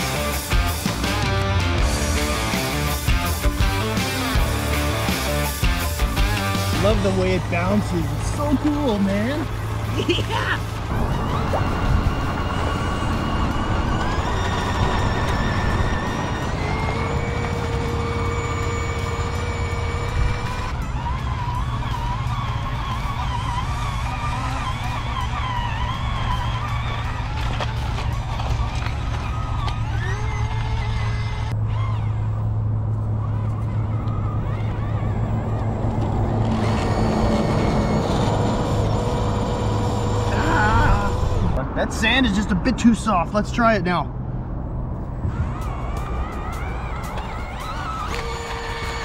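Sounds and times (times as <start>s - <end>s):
steady high whine: 0.0s - 28.0s
heavy highway traffic rumble: 0.0s - 49.0s
rc car electric motor whining: 11.2s - 32.1s, 33.3s - 41.6s, 45.3s - 49.0s.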